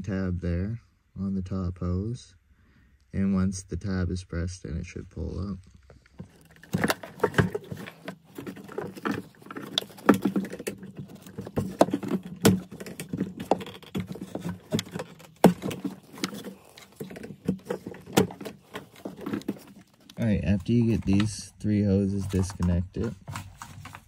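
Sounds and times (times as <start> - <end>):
plastic clicks and rustling: 5.8 - 21.4.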